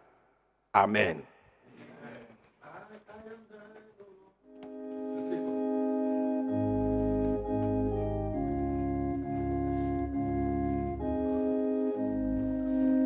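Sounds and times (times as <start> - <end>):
organ chords: 4.4 - 13.0
deep organ bass notes: 4.5 - 13.0.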